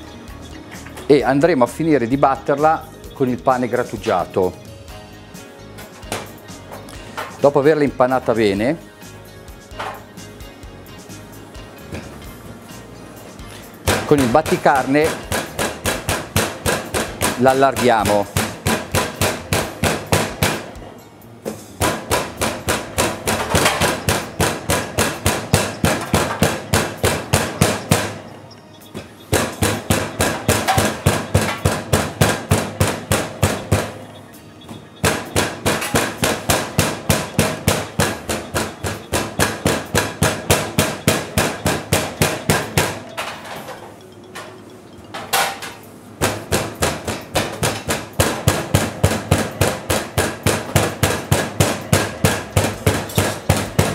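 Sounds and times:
meat pounder beating on metal tray: 0:13.8 - 0:20.8, 0:21.8 - 0:28.2, 0:29.3 - 0:34.0, 0:34.7 - 0:43.3, 0:46.2 - 0:53.9.

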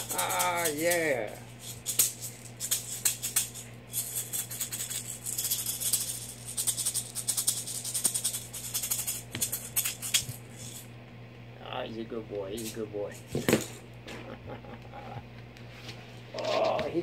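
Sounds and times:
maraca rattling: 0:00.0 - 0:10.9.

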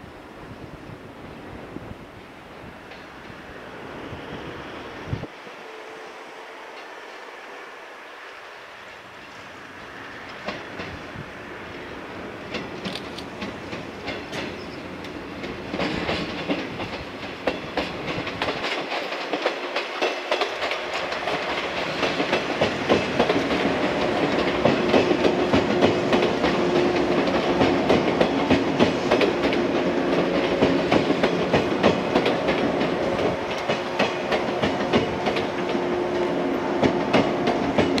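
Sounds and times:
electric train passing: 0:00.0 - 0:38.0
wheels clacking over rail joints: 0:09.2 - 0:38.0.

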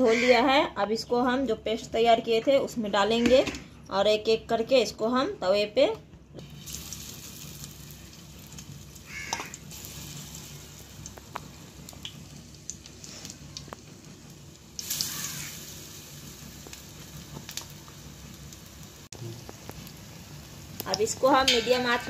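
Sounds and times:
food frying in hot oil: 0:06.4 - 0:22.0.

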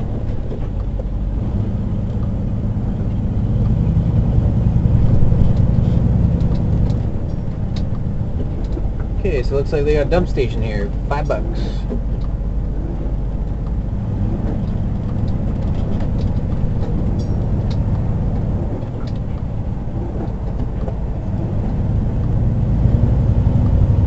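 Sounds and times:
faint rattles: 0:00.0 - 0:23.1
engine and road rumble: 0:00.0 - 0:24.0.

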